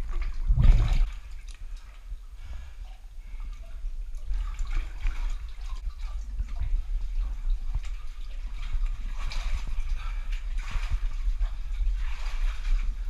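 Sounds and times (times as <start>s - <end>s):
low rumble: 0.0s - 13.0s
water splashing and dripping: 0.0s - 13.0s.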